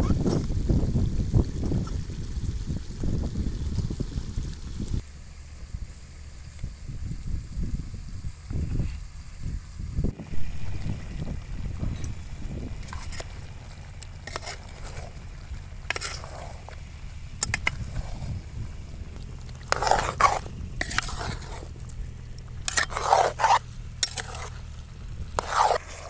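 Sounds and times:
metal spoon scraping steel bowl: 0:10.4 - 0:15.2, 0:15.8 - 0:16.8, 0:17.4 - 0:18.4, 0:19.6 - 0:21.8, 0:22.6 - 0:24.6, 0:25.4 - 0:26.0.

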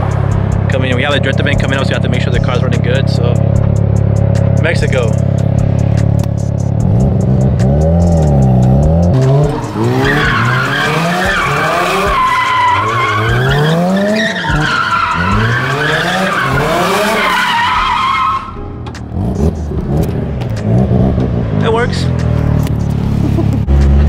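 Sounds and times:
rotary engine revving hard: 0:06.8 - 0:17.9, 0:19.1 - 0:24.0
tyres squealing: 0:09.1 - 0:18.6.

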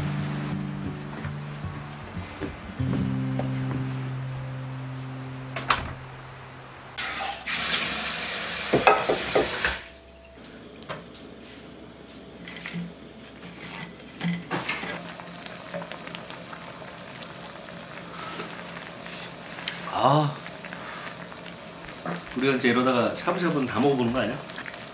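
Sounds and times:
water running from tap: 0:07.0 - 0:10.0
kitchenware clinking: 0:08.7 - 0:09.8.

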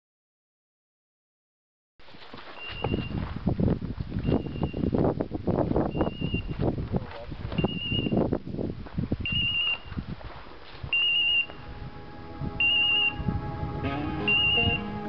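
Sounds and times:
footsteps in grass: 0:02.0 - 0:04.3, 0:09.7 - 0:11.8
high beeper collar beeps: 0:11.0 - 0:15.0
background music: 0:11.6 - 0:15.0.

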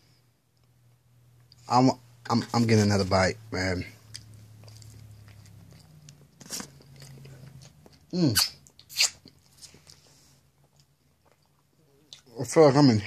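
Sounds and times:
man chewing crunchy food: 0:03.9 - 0:12.3.

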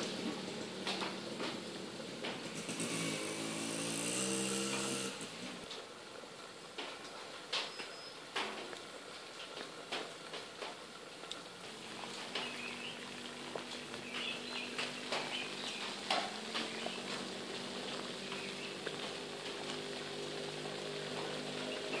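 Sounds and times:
fire crackling and popping: 0:00.0 - 0:04.8, 0:06.7 - 0:22.0
water boiling in a pot: 0:00.0 - 0:22.0
birds chirping: 0:07.6 - 0:08.3, 0:11.6 - 0:22.0.

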